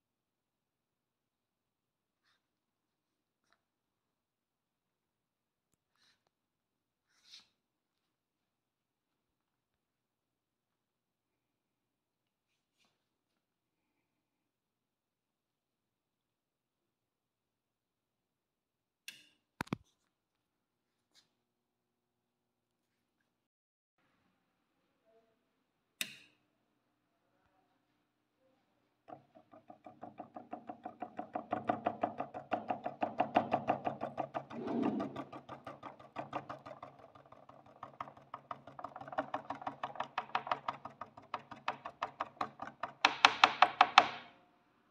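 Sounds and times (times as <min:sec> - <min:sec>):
fingertip tapping on acrylic plate: 0:29.1 - 0:44.2.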